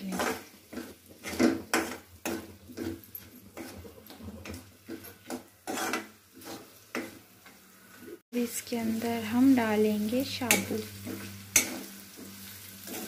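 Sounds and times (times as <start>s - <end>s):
metal ladle scraping metal pan: 0.1s - 7.1s.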